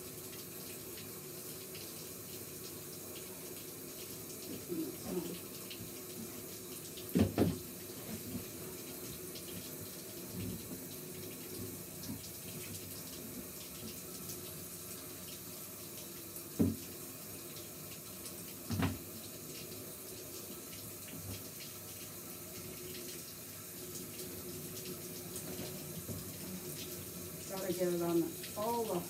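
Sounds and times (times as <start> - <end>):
water running from a tap: 0.0 - 29.0.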